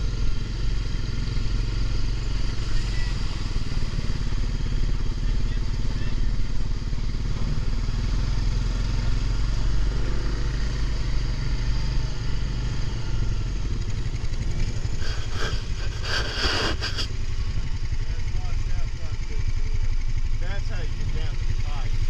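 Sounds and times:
atv engine running at low speed: 0:00.0 - 0:22.0
rush of noise: 0:14.5 - 0:17.6.

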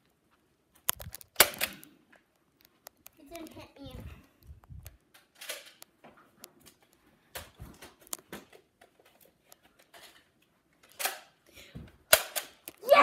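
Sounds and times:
camera handling noise: 0:00.8 - 0:01.9.

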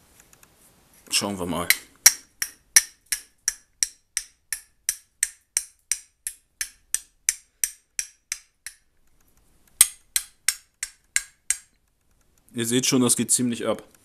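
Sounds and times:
fire striker clicking on flint: 0:01.7 - 0:12.6.

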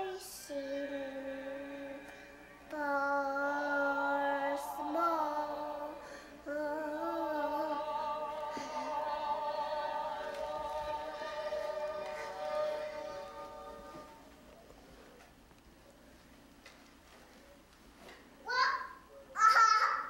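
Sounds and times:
girl singing with vibrato: 0:00.0 - 0:14.2.

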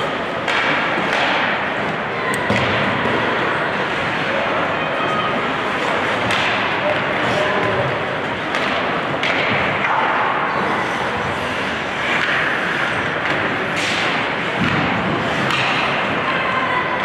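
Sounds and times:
hockey sticks and puck knocking: 0:00.4 - 0:03.2, 0:05.7 - 0:16.3
skates scraping on ice: 0:09.8 - 0:16.3.

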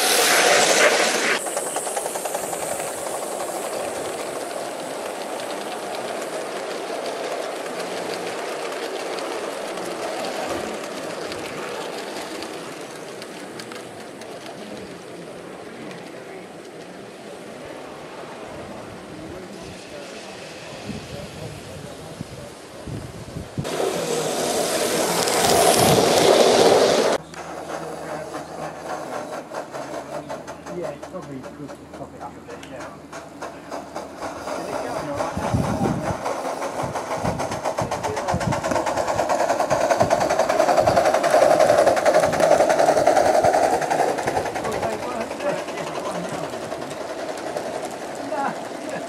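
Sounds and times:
steam locomotive rhythmic beat: 0:00.0 - 0:13.7, 0:23.6 - 0:49.0
steady rushing noise: 0:00.0 - 0:14.3, 0:17.4 - 0:29.8, 0:33.0 - 0:49.0
model train wheels clicking: 0:00.0 - 0:18.2, 0:19.4 - 0:49.0.

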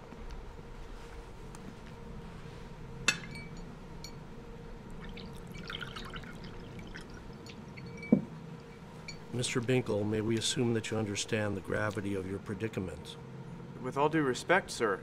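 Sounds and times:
tea pouring into a cup: 0:05.0 - 0:07.6
china clinking: 0:07.4 - 0:09.3.

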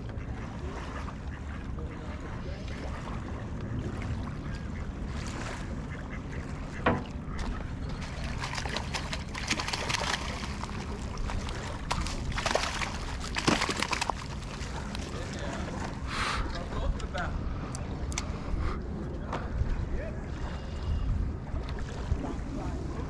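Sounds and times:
splashing and rustling in water: 0:00.0 - 0:16.6.

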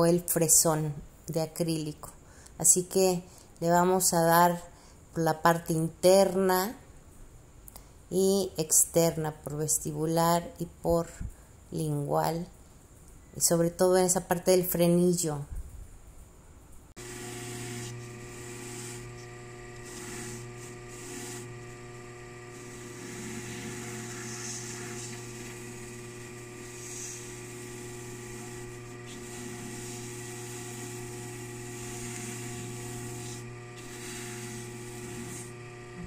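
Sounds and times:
polishing lathe motor hum: 0:17.0 - 0:36.0
brush wheel brushing hiss: 0:23.0 - 0:30.3.

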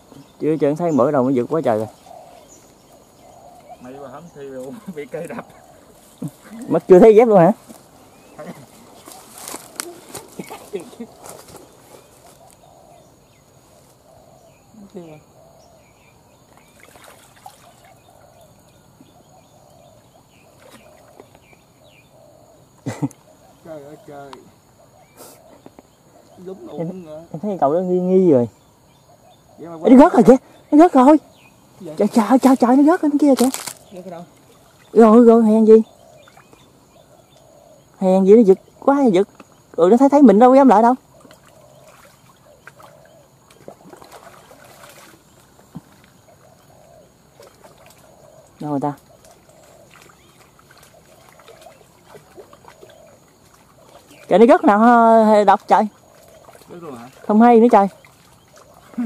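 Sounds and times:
faint outdoor background noise: 0:00.0 - 0:59.0
small birds chirping: 0:00.0 - 0:59.0
water sloshing while wading: 0:16.4 - 0:21.8, 0:32.0 - 0:37.6, 0:40.7 - 0:59.0.

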